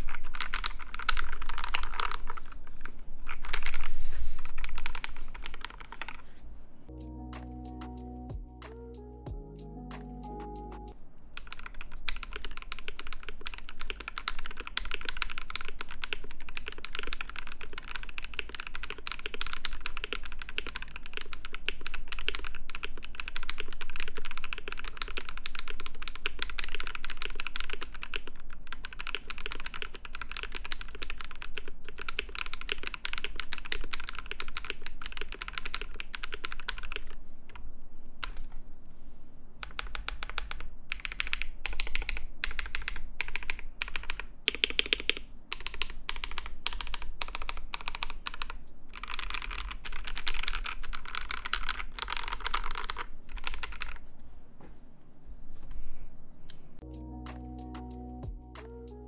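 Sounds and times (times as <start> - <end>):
mechanical keyboard typing: 0.0 - 3.9, 4.5 - 6.2, 11.4 - 37.2, 39.6 - 54.0.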